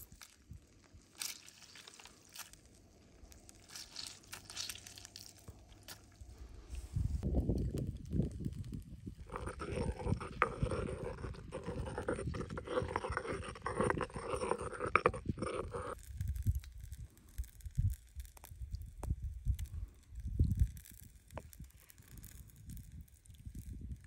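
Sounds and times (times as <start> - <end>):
pestle scraping in stone mortar: 9.2 - 16.0.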